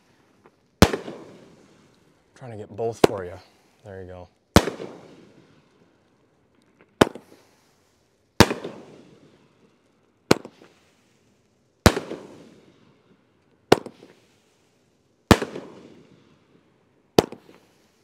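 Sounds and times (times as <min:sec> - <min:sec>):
firework bangs with rumble: 0:04.5 - 0:05.3, 0:08.4 - 0:09.1, 0:11.8 - 0:12.5, 0:15.3 - 0:16.0.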